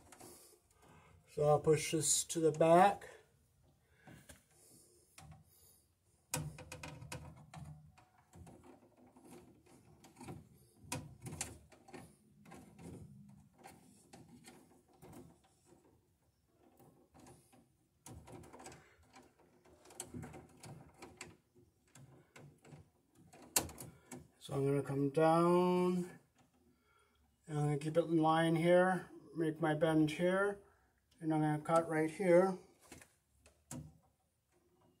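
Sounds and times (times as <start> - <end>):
cable clicks and scrapes: 0.0 - 3.2, 4.0 - 24.5, 31.4 - 35.0.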